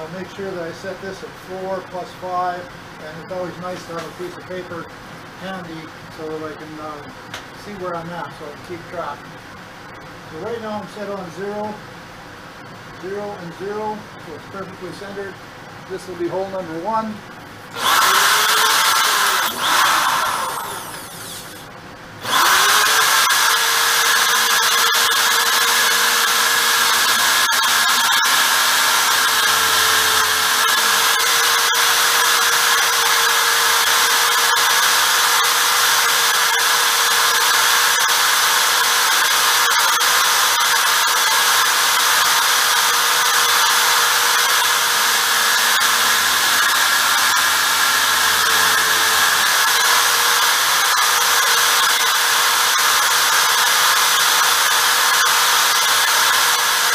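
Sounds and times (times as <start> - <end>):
electric drill running: 17.7 - 56.9.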